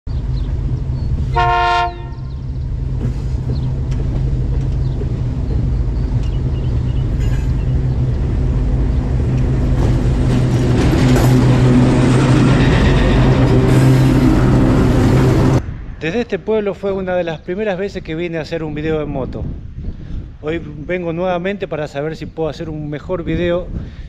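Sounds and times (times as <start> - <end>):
wind noise: 0.1 - 24.0.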